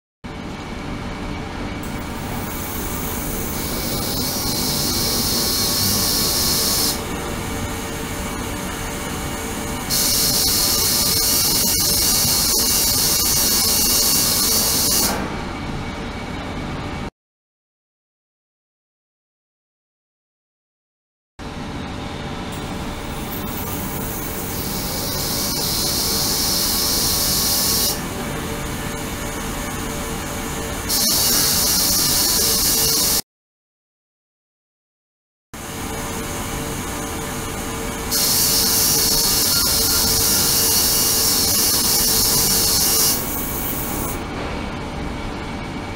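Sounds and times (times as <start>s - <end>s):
ultrasonic bath hissing: 2.4s - 7.0s.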